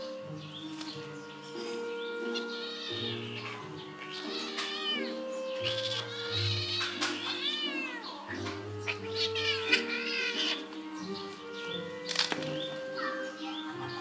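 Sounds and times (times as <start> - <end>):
background music: 0.0 - 14.0
kitten meowing: 1.8 - 11.6.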